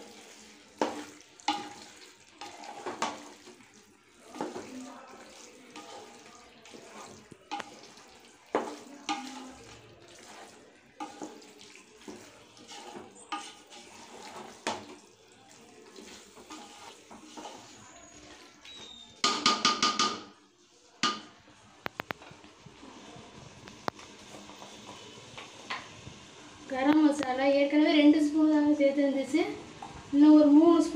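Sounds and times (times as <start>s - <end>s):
spoon stirring in metal pot: 0.0s - 20.4s, 21.0s - 22.4s.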